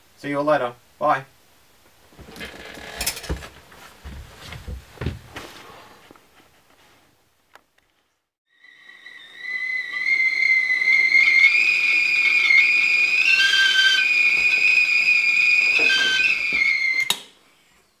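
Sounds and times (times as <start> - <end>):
kettle whistling: 8.5 - 17.3.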